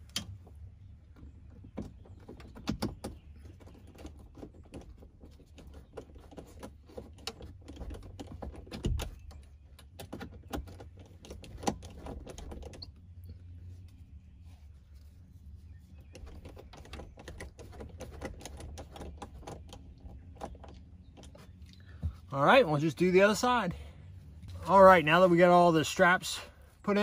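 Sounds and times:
small clicks taps and rattles: 1.1s - 13.3s, 16.0s - 22.2s.

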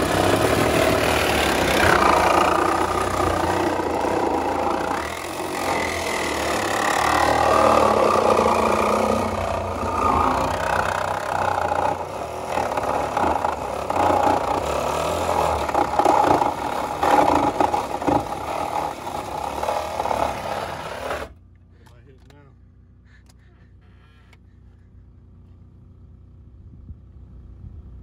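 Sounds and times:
power cutting tool grinding metal: 0.0s - 21.4s.

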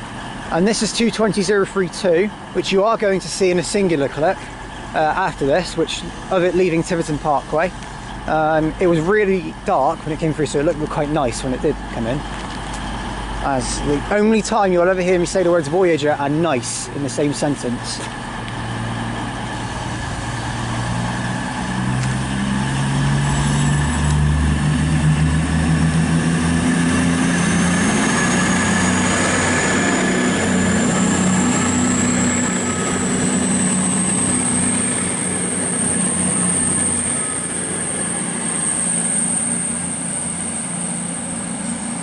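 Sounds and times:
train diesel engines powering up: 0.0s - 42.0s
thin high whine: 22.4s - 42.0s.

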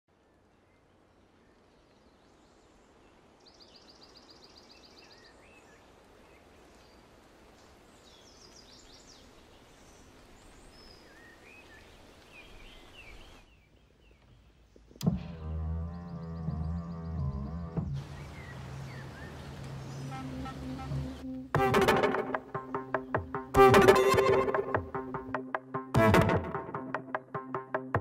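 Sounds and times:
soft hiss: 0.2s - 15.1s, 17.9s - 21.4s
small birds calling: 0.2s - 24.9s.

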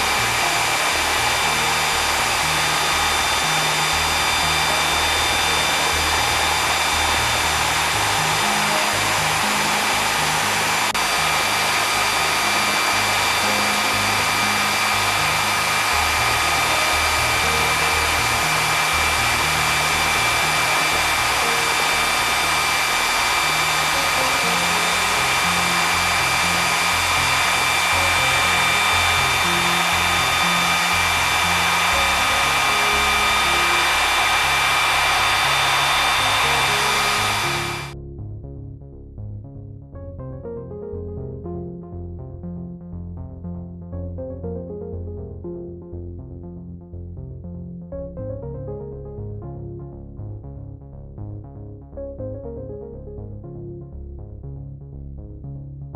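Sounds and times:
jet engine rushing and whining: 0.0s - 38.0s
background music with bass line: 0.0s - 55.9s.

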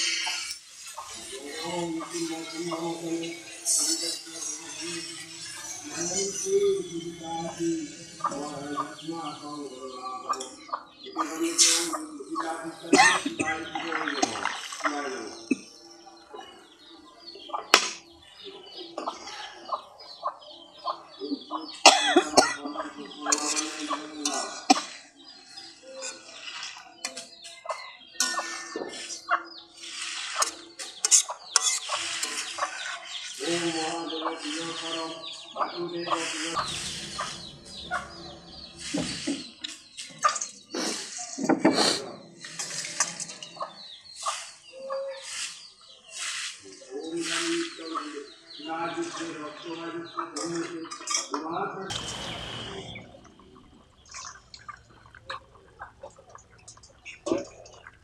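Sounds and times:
chickens chirping: 0.0s - 58.0s
curry bubbling and spitting: 53.2s - 58.0s.

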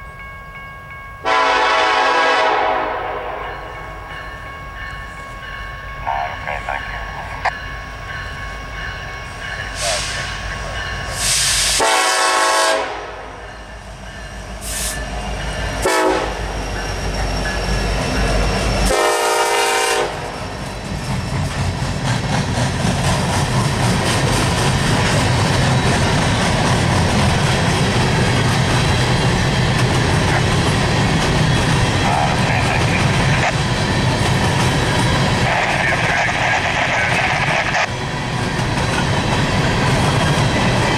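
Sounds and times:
train wagons rumbling on rails: 0.9s - 40.9s
locomotive air horn: 1.2s - 3.6s, 11.2s - 13.4s, 15.8s - 16.5s, 18.9s - 20.3s.

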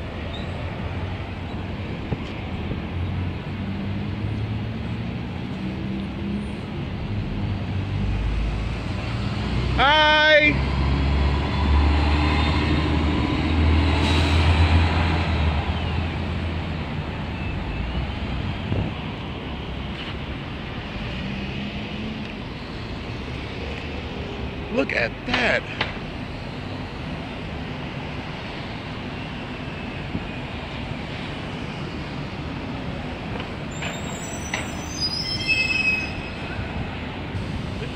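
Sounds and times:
road noise: 0.0s - 37.9s
street traffic: 0.0s - 37.9s
bus engine rumble: 10.5s - 37.9s
high-pitched squeal: 33.7s - 36.7s.

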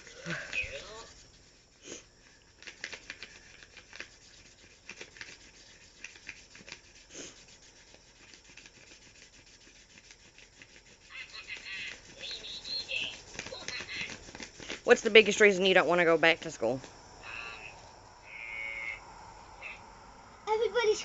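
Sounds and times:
marker scribbling on paper: 0.0s - 16.8s.

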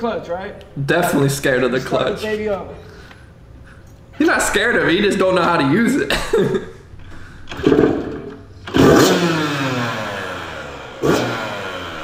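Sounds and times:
dirt bike engine revving: 8.6s - 12.0s.

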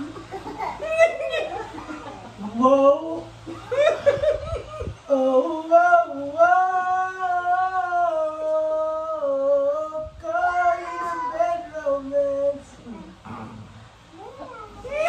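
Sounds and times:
woman singing unaccompanied: 5.1s - 13.2s.

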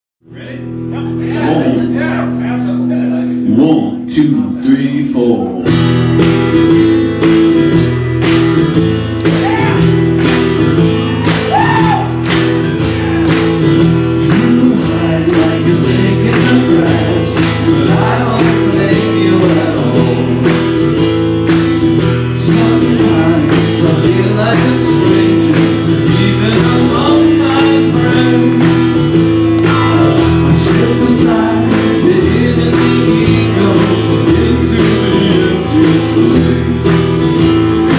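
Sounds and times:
acoustic guitars strumming: 0.2s - 37.9s
man singing: 1.1s - 6.0s, 14.1s - 21.0s, 22.1s - 37.9s.

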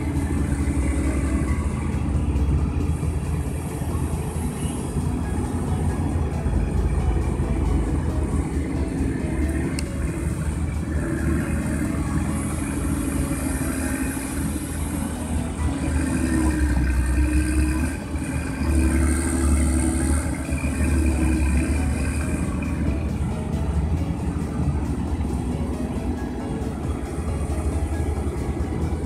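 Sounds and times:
excavator diesel engine working: 0.0s - 29.0s.

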